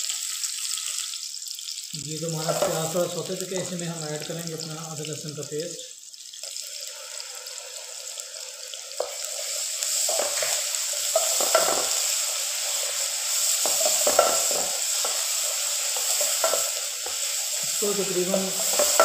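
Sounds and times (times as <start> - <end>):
onions sizzling in hot oil: 0.0 - 19.0
wooden spatula scraping pot: 2.4 - 3.0.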